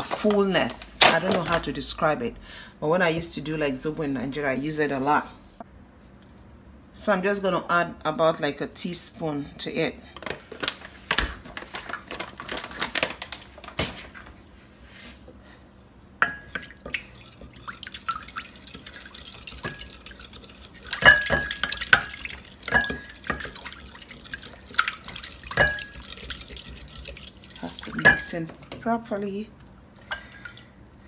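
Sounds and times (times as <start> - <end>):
wooden spoon clinking on glass jug: 20.9 - 23.6, 25.5 - 26.1.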